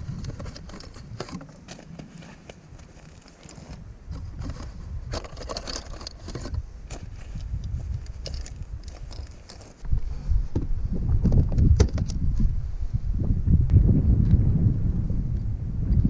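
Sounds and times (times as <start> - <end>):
wind buffeting microphone: 0.0 - 1.4, 3.6 - 16.0
shotgun shells clicking and rattling: 0.1 - 9.8
low rumble: 9.8 - 16.0.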